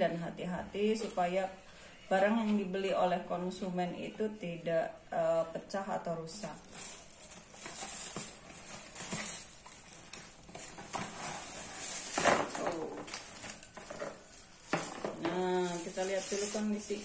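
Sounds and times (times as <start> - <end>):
plastic wrapping crinkling: 6.3 - 17.0.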